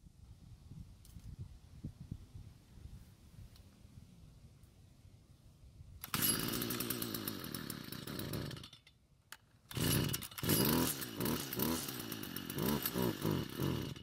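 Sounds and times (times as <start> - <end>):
string trimmer engine running unevenly: 6.0 - 8.9, 9.7 - 14.0.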